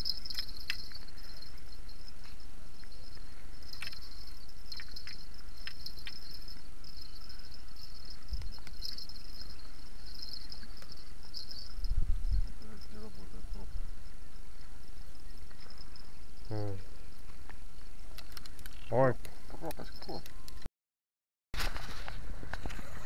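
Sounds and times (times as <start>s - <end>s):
crickets chirping: 0.0s - 20.6s
wind rumble on microphone: 11.3s - 14.1s.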